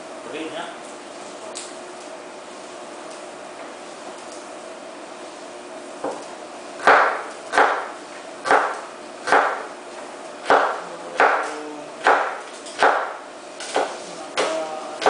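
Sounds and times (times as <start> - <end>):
knife chopping on wooden board: 6.8 - 9.7, 10.4 - 14.6.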